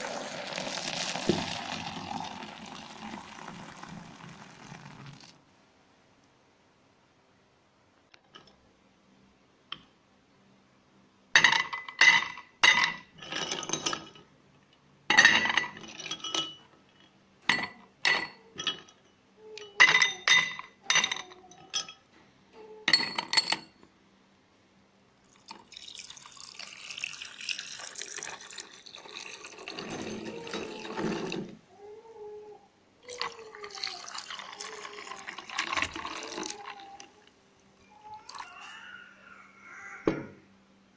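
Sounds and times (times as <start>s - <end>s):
ice cubes clinking in glasses: 0.0s - 5.3s, 25.3s - 31.4s, 33.2s - 37.0s
juice pouring over ice: 0.0s - 5.4s, 25.2s - 31.6s, 33.1s - 37.2s, 38.3s - 38.7s.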